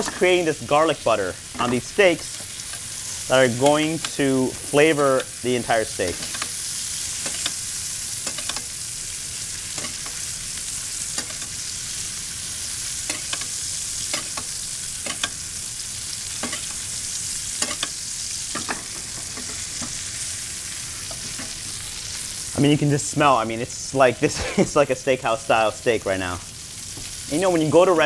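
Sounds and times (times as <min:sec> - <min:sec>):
butter sizzling in a pan: 0:00.0 - 0:28.0
metal spoon clicking on a pan: 0:08.2 - 0:08.7, 0:13.1 - 0:15.4, 0:17.6 - 0:18.8.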